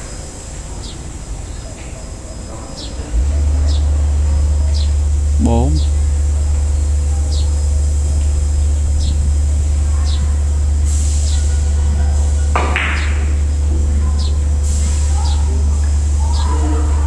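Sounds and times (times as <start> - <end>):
steady low hum: 3.1 - 12.5
cue striking billiard ball: 12.6 - 13.2.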